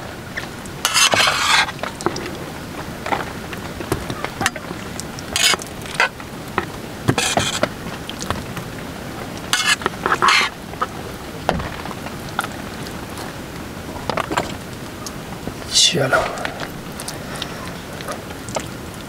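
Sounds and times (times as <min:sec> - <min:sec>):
metal spoon scraping a pan: 0:00.8 - 0:01.8, 0:05.4 - 0:06.1, 0:07.2 - 0:07.7, 0:09.5 - 0:10.6.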